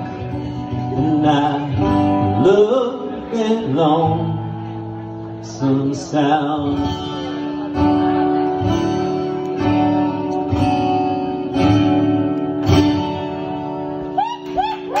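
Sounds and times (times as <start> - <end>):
acoustic guitar strumming chords: 0.0 - 14.2.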